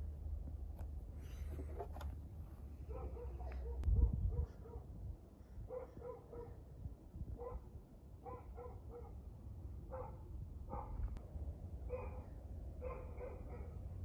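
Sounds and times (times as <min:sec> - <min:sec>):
dog barking: 0:02.9 - 0:04.9, 0:05.7 - 0:06.6, 0:07.4 - 0:09.2, 0:09.9 - 0:11.0, 0:11.9 - 0:13.9.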